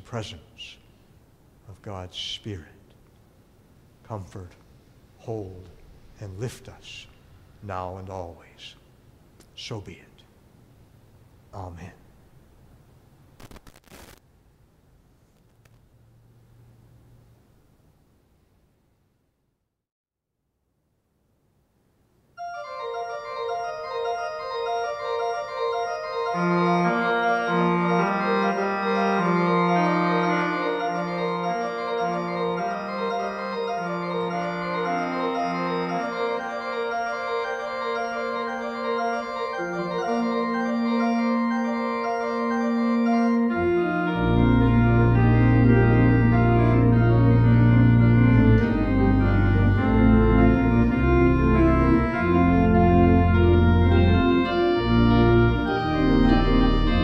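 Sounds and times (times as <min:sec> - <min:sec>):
deep organ pedal bass: 0:22.4 - 0:57.0
organ playing: 0:22.4 - 0:57.0.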